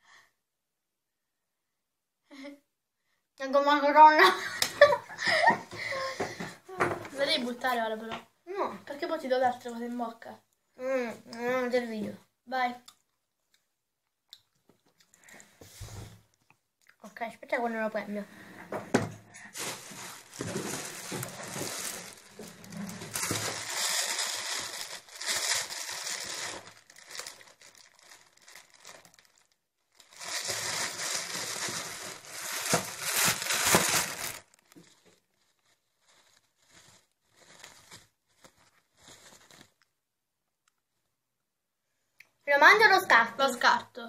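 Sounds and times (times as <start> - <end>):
food wrapping crinkling: 19.4 - 40.0.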